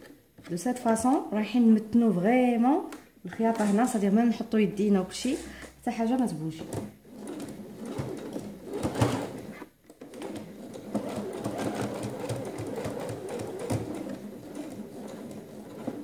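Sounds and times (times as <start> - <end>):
sewing machine stitching: 3.4 - 4.1, 5.2 - 16.0.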